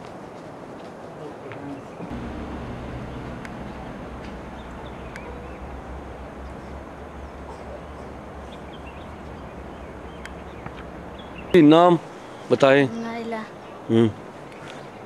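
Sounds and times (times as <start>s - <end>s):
steady low rumble: 2.1s - 11.6s.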